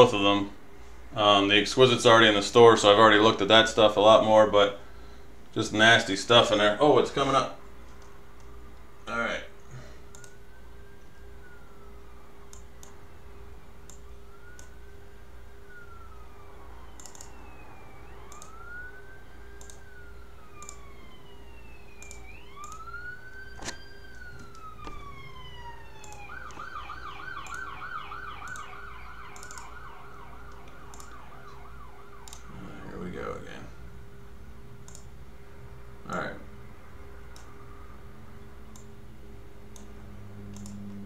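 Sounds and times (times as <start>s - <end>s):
siren wailing and yelping: 8.5s - 34.0s
light clicks: 9.6s - 10.4s, 17.0s - 17.4s, 18.3s - 18.6s, 22.0s - 22.9s, 29.4s - 29.8s, 30.5s - 31.2s, 32.2s - 32.5s, 34.8s - 35.1s, 37.3s - 37.5s, 40.5s - 41.0s.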